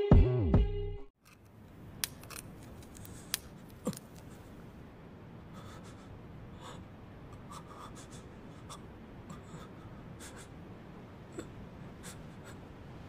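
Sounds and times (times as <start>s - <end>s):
light crackles: 1.2s - 7.7s
candy snapping: 2.0s - 4.3s.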